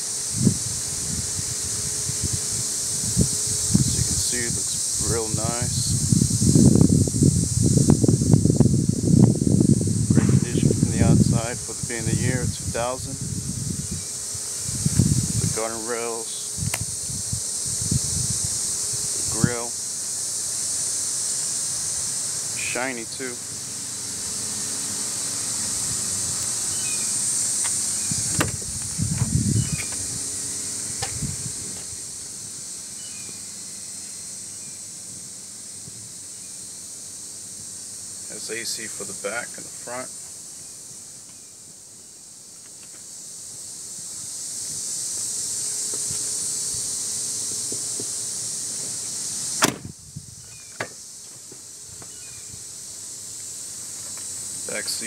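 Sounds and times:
steady high hiss: 0.0s - 55.0s
door knocking and rubbing: 28.2s - 30.0s
car door latch click: 28.3s - 28.6s, 49.6s - 49.9s
handle and latch clicks: 28.3s - 28.6s.

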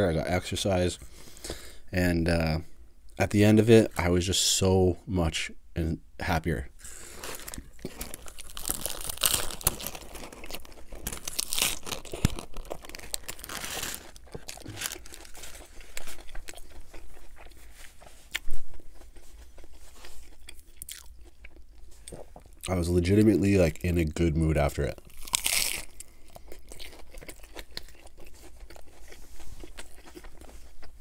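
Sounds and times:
crunching lettuce: 6.8s - 31.0s
paper wrapper crinkling: 7.2s - 16.6s
chewing: 7.2s - 22.7s, 25.0s - 31.0s.

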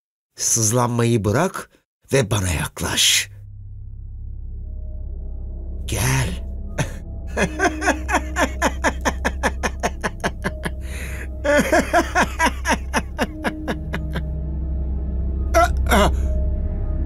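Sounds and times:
steady low drone: 3.0s - 17.0s
man laughing: 6.8s - 14.4s.

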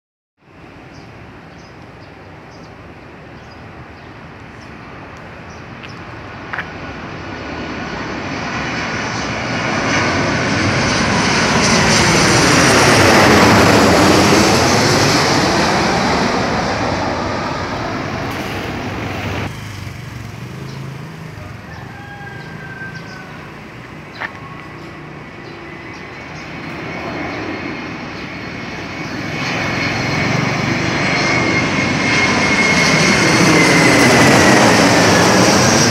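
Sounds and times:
jet airliner passing overhead: 0.4s - 35.9s.

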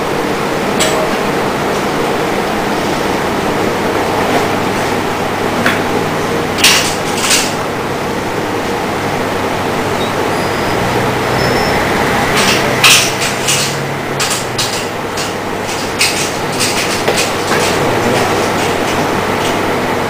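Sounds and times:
sharp engine cracks: 12.2s - 19.6s.

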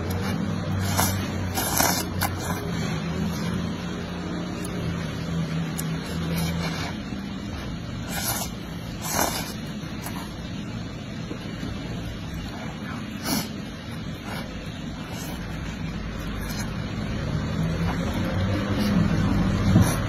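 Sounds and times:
steady low hum: 0.0s - 20.0s
person slurping noodles: 0.1s - 3.7s, 5.8s - 10.4s.

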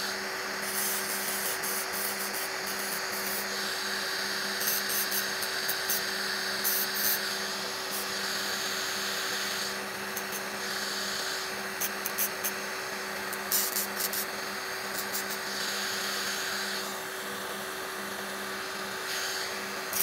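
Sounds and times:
electric nail drill running: 0.0s - 20.0s
disc grinding on fingernail: 8.0s - 12.6s, 13.3s - 16.9s.

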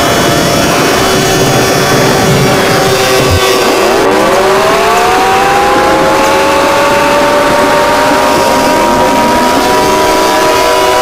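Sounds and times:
electronic alarm tones: 2.8s - 5.4s.

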